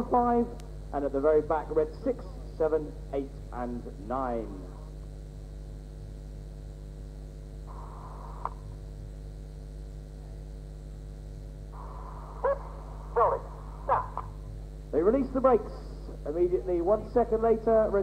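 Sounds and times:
low hum with faint hiss: 0:00.0 - 0:18.0
bright hiss: 0:07.6 - 0:08.7, 0:11.7 - 0:14.4
click: 0:08.4 - 0:08.6.

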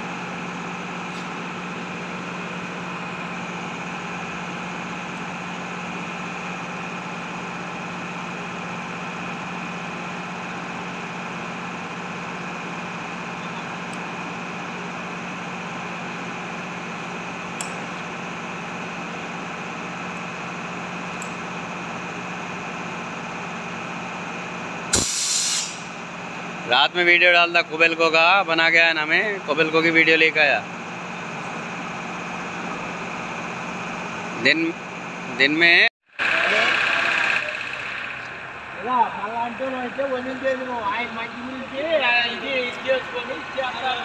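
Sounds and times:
machine hum: 0:36.2 - 0:44.0.

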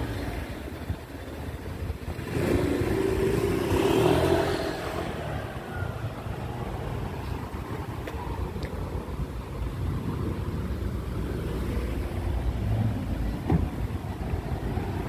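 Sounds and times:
low street noise: 0:00.0 - 0:15.0
motor scooter riding past: 0:02.2 - 0:06.2.

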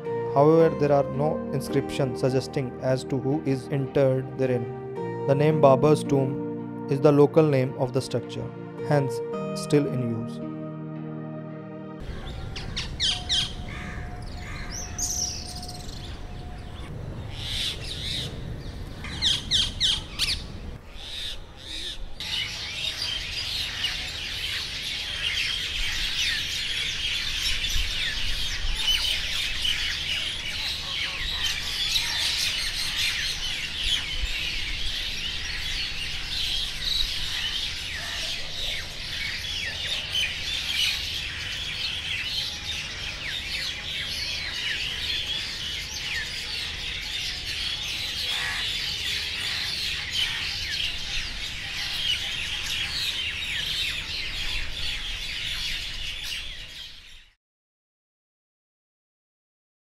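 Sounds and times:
chorus of birds chirping: 0:12.0 - 0:57.3
parakeets squawking: 0:48.2 - 0:50.6.

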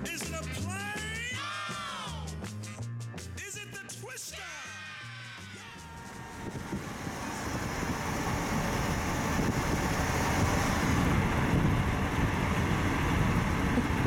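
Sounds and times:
road and wind noise inside car: 0:06.1 - 0:14.0.

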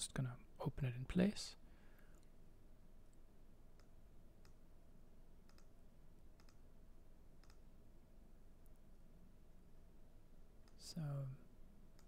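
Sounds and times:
low steady hiss: 0:00.0 - 0:12.0
computer mouse clicks: 0:03.7 - 0:04.6, 0:05.4 - 0:06.7, 0:07.4 - 0:07.7, 0:10.6 - 0:10.8.

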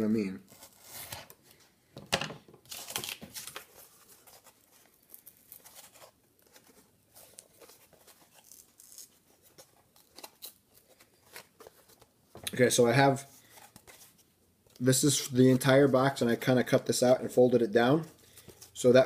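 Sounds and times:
cardboard crinkling and rustling: 0:02.6 - 0:14.3.

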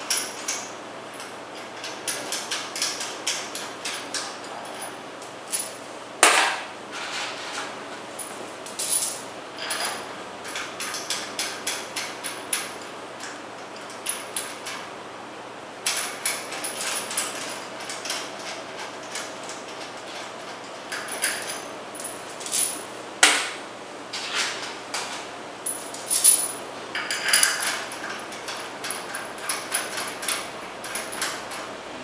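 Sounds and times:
metal bolts and washers clinking: 0:00.1 - 0:04.9, 0:25.7 - 0:31.7.

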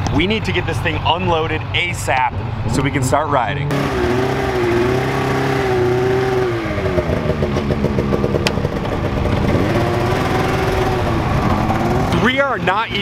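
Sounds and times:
snowmobile engine revving: 0:02.8 - 0:08.4, 0:09.0 - 0:13.0.

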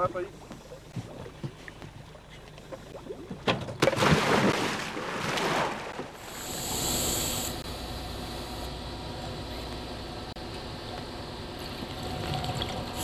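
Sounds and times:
diver splashing into water: 0:03.8 - 0:06.2.

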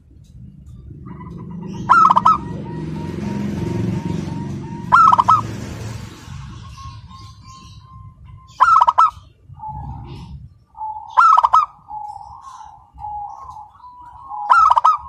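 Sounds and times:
low rumble: 0:00.0 - 0:08.6, 0:09.2 - 0:10.8
dove cooing: 0:01.0 - 0:07.3, 0:08.5 - 0:15.0.

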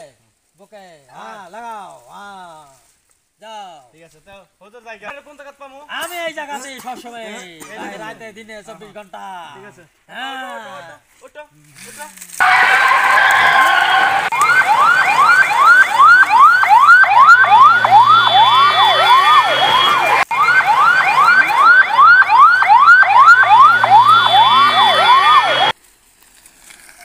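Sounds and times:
siren-like sweeping tone: 0:12.4 - 0:25.7.

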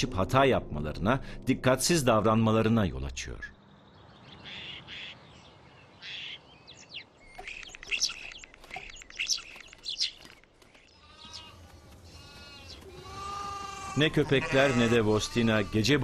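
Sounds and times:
starling singing: 0:06.0 - 0:16.0
lambs bleating: 0:11.0 - 0:16.0.

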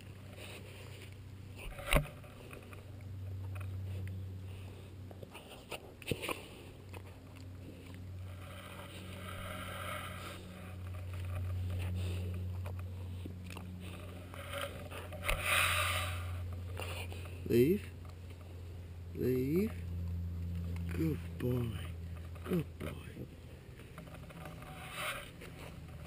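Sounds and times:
puppy chewing clothes peg: 0:00.0 - 0:09.2
steady low hum: 0:00.0 - 0:26.0.

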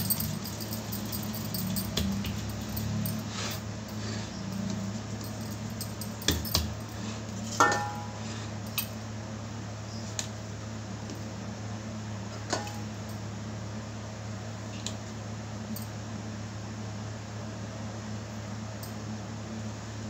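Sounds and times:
metallic clink: 0:00.0 - 0:07.0
steady low hum: 0:00.0 - 0:20.0.

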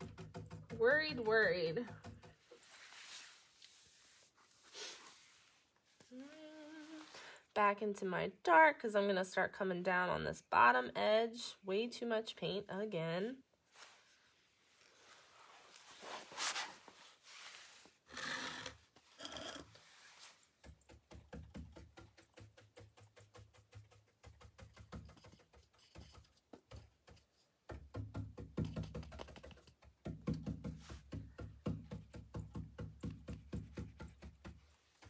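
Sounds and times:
paintbrush tapping: 0:00.0 - 0:02.6, 0:20.6 - 0:35.0
paintbrush swishing on wood: 0:02.3 - 0:06.0.

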